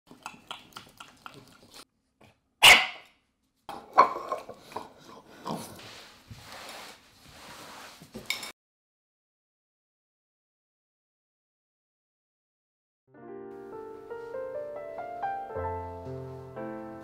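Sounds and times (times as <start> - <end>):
puppies barking: 2.6 - 3.0.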